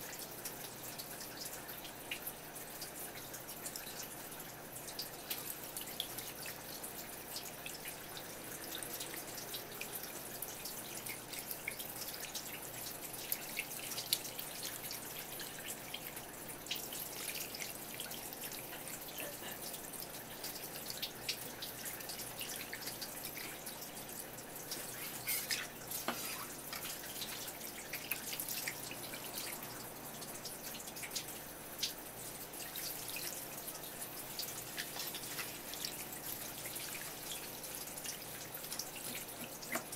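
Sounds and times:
tap water splashing: 24.6s - 29.6s, 34.4s - 39.9s.

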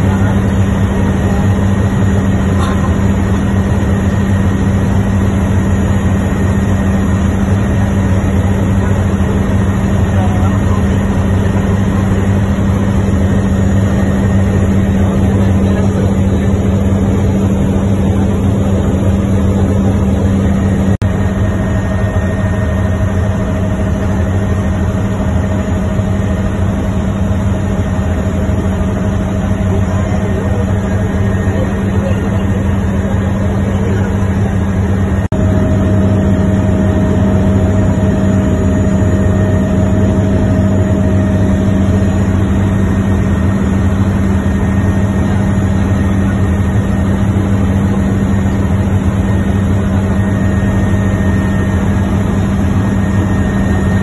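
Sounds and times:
helicopter rotor and engine drone: 0.0s - 54.0s.

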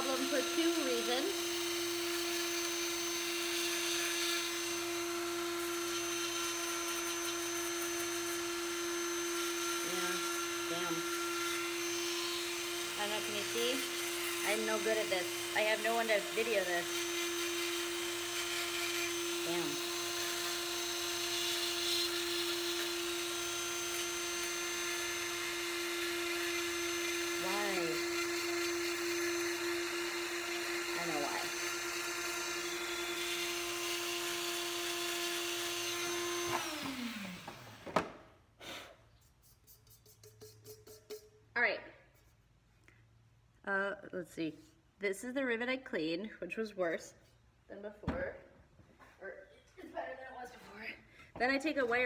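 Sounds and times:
rotary tool whining: 0.0s - 38.1s.

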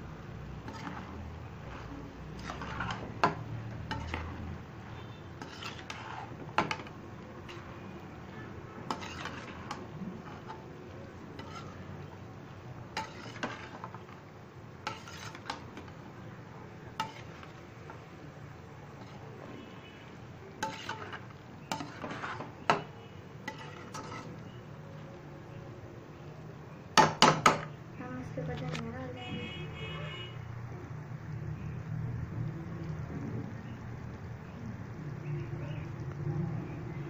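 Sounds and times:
spatula scraping metal pan: 0.6s - 12.2s, 12.8s - 14.2s, 14.8s - 16.1s, 16.9s - 18.1s, 18.9s - 20.0s, 20.6s - 24.6s.

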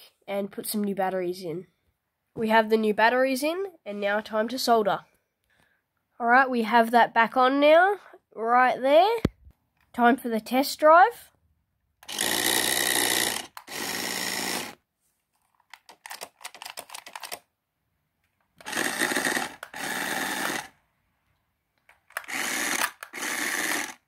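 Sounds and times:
toy car motor whirring: 12.0s - 14.8s, 18.6s - 20.8s, 22.1s - 24.0s.

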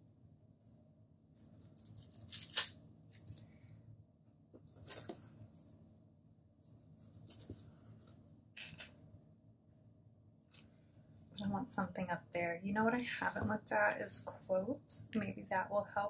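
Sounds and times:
paper and plastic rustling: 1.3s - 3.4s, 4.6s - 5.8s, 7.0s - 9.0s.

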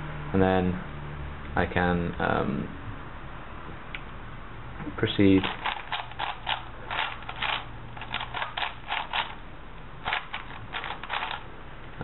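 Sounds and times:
puzzle cube plastic clicks: 5.4s - 9.4s, 10.0s - 11.4s.

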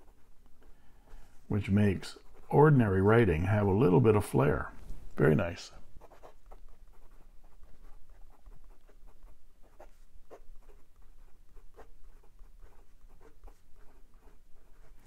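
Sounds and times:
pen nib scratching on paper: 0.0s - 0.7s, 6.0s - 15.0s.

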